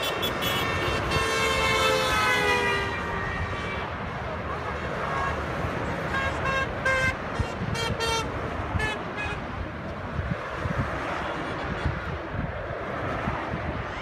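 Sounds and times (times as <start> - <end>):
car horns honking: 0.0 - 3.6, 6.1 - 9.4
motorway traffic rumble: 0.0 - 14.0.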